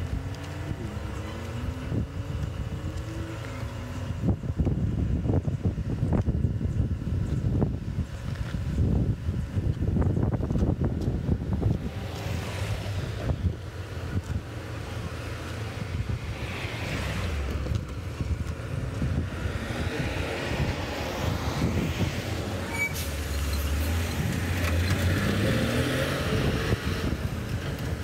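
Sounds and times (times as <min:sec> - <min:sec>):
road traffic rumble: 0:00.0 - 0:28.0
wind buffeting microphone: 0:00.0 - 0:28.0
vehicle engine rising in pitch: 0:11.5 - 0:27.6.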